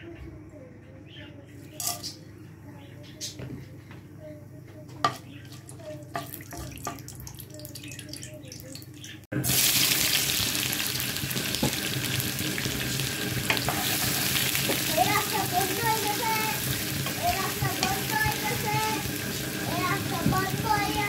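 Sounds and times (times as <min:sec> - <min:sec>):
spices crackling in hot oil: 0:05.4 - 0:21.0
onions sizzling in oil: 0:09.4 - 0:21.0.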